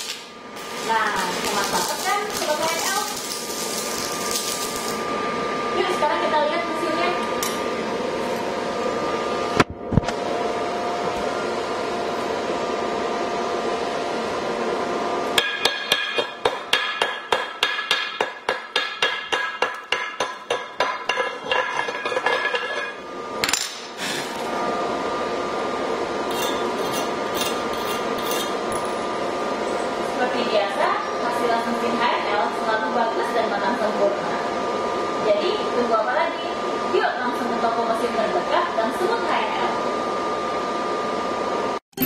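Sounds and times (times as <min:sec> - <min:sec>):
hammer chipping on steel: 0:15.4 - 0:22.7.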